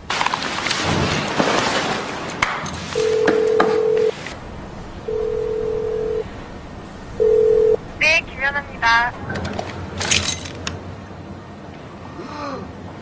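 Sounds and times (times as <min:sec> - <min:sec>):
telephone ringback beeps: 0:03.0 - 0:04.2, 0:05.1 - 0:06.2, 0:07.2 - 0:07.8.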